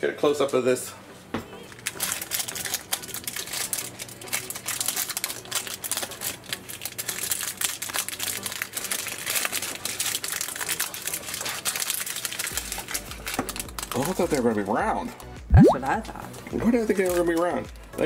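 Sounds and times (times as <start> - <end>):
snack wrapper tearing and crinkling: 1.7 - 14.7.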